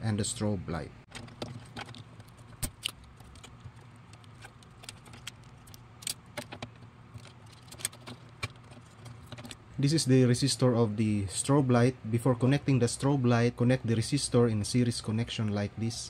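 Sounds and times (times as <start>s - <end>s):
clicks and taps of handling parts: 1.1s - 9.6s.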